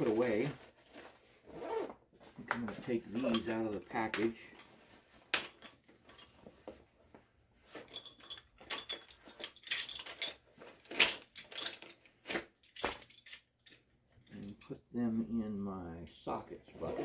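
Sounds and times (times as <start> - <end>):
metal tools clinking: 2.8 - 6.5, 7.7 - 14.9.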